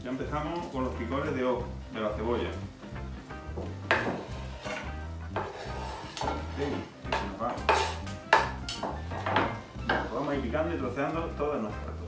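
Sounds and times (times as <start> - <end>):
knife chopping on wooden board: 3.6 - 10.2.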